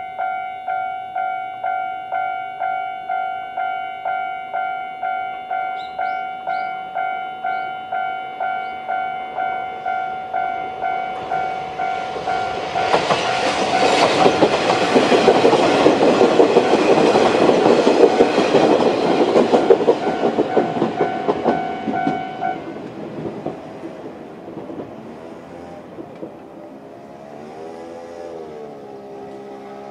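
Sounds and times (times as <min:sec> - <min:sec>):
level-crossing warning bell: 0:00.0 - 0:23.0
train wheels clattering over joints: 0:11.2 - 0:28.0.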